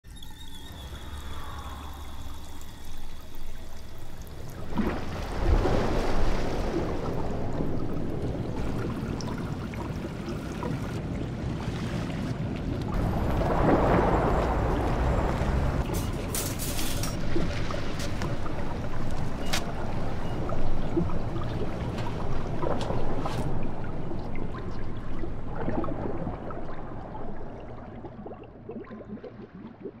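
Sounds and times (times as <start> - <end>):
running water rushing: 0.2 - 27.8
bubbly pops and drips: 24.5 - 30.0.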